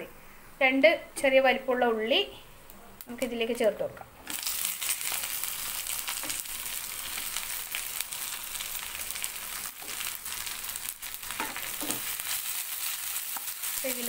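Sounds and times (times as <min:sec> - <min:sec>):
onions sizzling in hot oil: 0:03.0 - 0:14.0
spatula turning food in pan: 0:04.2 - 0:14.0.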